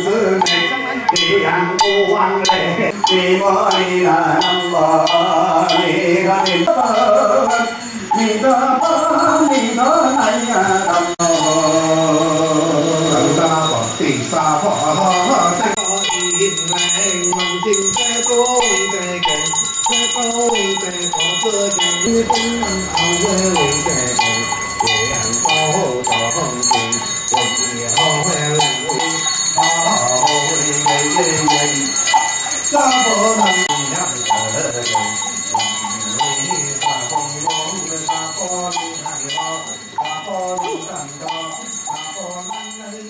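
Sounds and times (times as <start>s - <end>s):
hand bells ringing: 0.0s - 43.0s.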